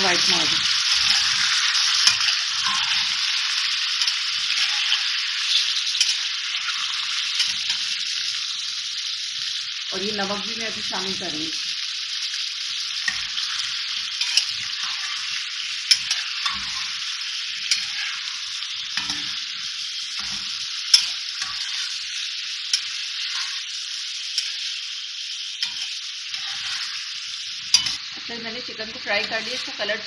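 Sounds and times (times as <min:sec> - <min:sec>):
chicken sizzling in hot oil: 0:00.0 - 0:30.0
metal spatula scraping a pan: 0:00.3 - 0:08.0, 0:13.0 - 0:24.7, 0:25.6 - 0:28.1.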